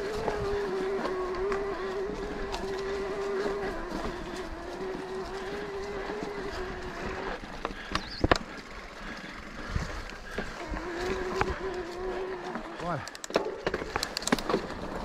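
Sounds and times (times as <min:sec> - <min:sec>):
electric bike motor whining: 0:00.0 - 0:15.0
bike knocks and rattles: 0:06.2 - 0:08.7, 0:12.4 - 0:15.0.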